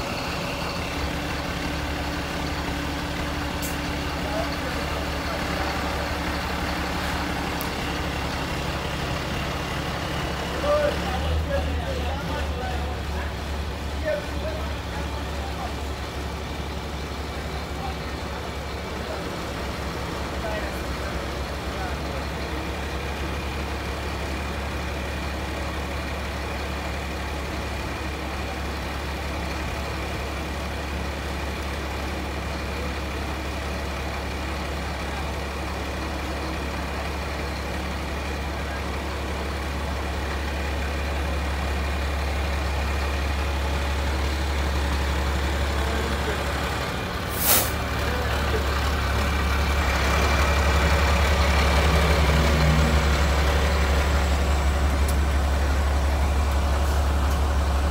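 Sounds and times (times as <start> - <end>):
diesel engine running: 0.0 - 57.9
burst of hissing air: 47.3 - 47.8.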